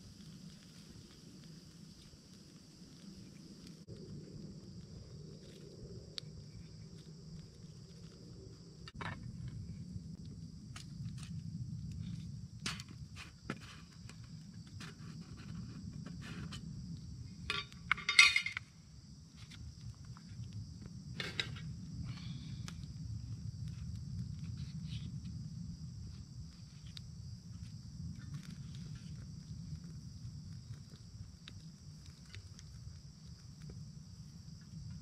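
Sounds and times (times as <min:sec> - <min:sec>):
insects droning: 0:00.0 - 0:35.0
metal cookware clattering on stone: 0:17.5 - 0:18.6.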